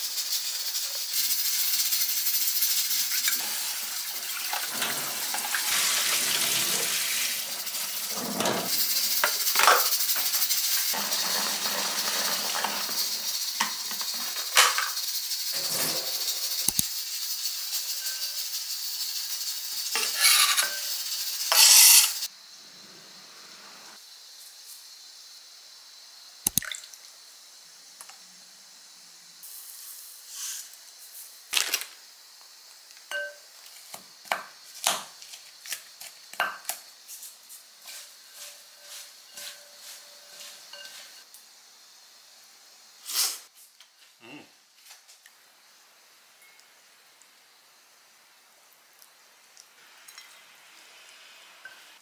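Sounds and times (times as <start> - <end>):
dishes and utensils clinking: 8.0 - 15.0, 20.0 - 22.1, 38.4 - 41.3
short hiss: 29.4 - 31.9, 43.0 - 43.7.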